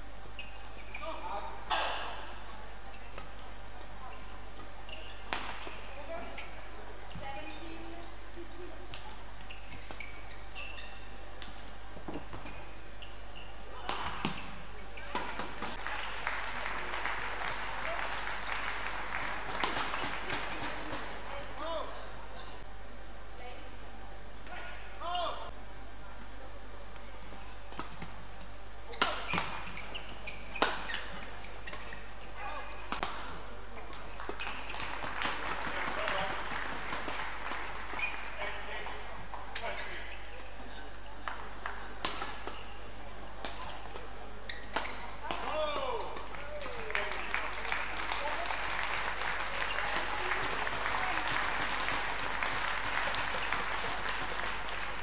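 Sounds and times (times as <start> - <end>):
shoes squeaking on court: 0.1 - 2.0, 2.8 - 15.9, 17.5 - 21.7, 27.3 - 35.1, 35.8 - 41.2, 41.9 - 48.5, 49.3 - 55.0
rackets hitting shuttlecock: 5.3 - 5.8, 13.8 - 14.5, 19.5 - 21.0, 28.9 - 29.7, 32.9 - 33.4, 41.6 - 42.5
crowd clapping and cheering: 15.8 - 20.3, 34.2 - 38.0, 46.7 - 55.0
racket hitting shuttlecock: 19.5 - 20.6.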